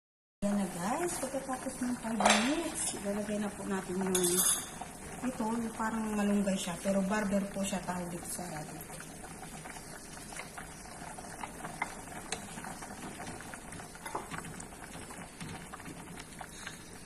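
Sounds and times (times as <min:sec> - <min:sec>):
soup bubbling at a boil: 0:00.4 - 0:17.0.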